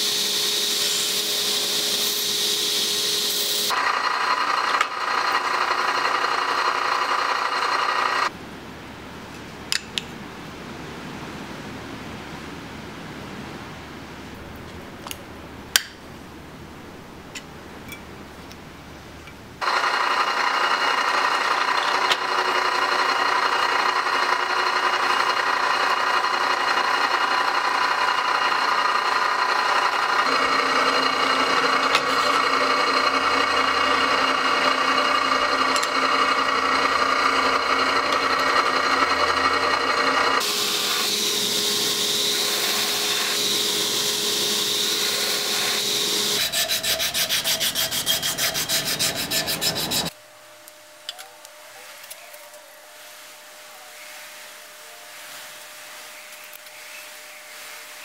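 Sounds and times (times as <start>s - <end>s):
belt grinder running: 0.0s - 8.3s, 19.6s - 50.1s
drill press drilling wood: 0.0s - 8.3s, 19.6s - 50.1s.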